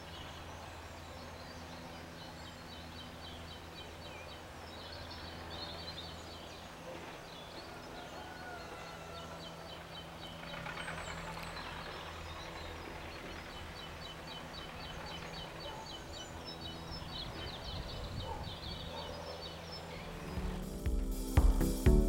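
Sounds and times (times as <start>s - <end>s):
bird chirping: 0.0s - 22.0s
low steady drone: 0.0s - 22.0s.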